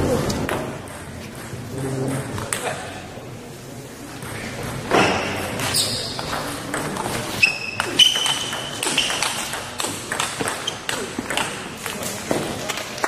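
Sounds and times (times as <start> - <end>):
shoes squeaking on floor: 4.4 - 9.6, 10.4 - 11.2.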